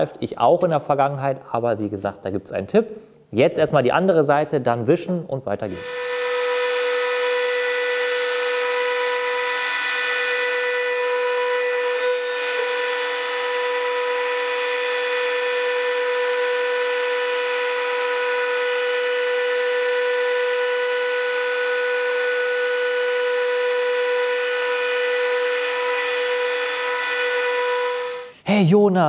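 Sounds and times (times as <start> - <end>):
electric sander whining on wood: 5.7 - 28.3.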